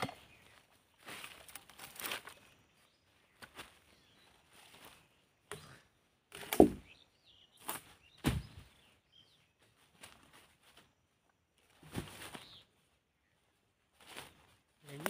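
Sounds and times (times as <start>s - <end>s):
faint bird chirps: 0.0s - 6.1s
heavy log thudding on ground: 6.3s - 6.9s, 8.2s - 8.7s.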